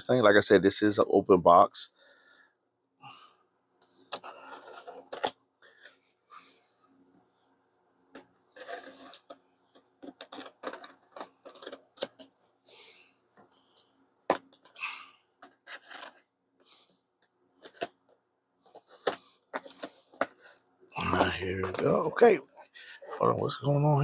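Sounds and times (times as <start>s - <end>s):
scratchy scrapes on cardboard: 8.6s - 9.3s.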